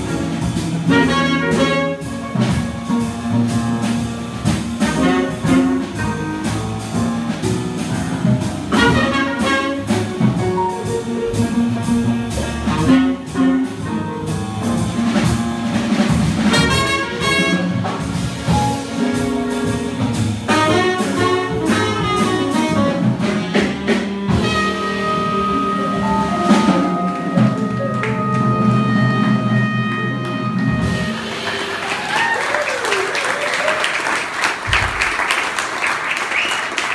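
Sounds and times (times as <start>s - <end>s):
live jazz band playing blues: 0.0s - 36.9s
horns holding sustained notes: 24.3s - 31.8s.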